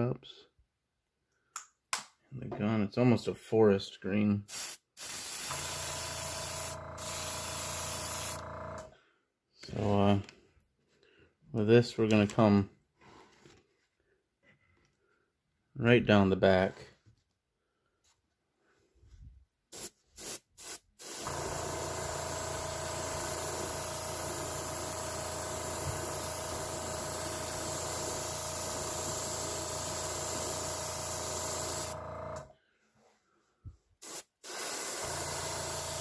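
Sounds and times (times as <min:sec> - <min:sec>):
airbrush spraying air: 0:04.5 - 0:08.4, 0:19.7 - 0:22.4, 0:23.0 - 0:32.0, 0:34.0 - 0:36.0.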